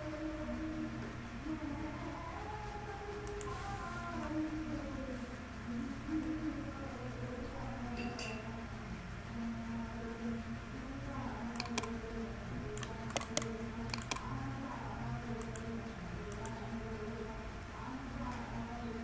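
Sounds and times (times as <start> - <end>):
steady low hum: 0.0 - 19.0
keyboard and mouse clicks: 3.2 - 3.6, 11.5 - 12.0, 12.8 - 14.3, 15.4 - 15.7.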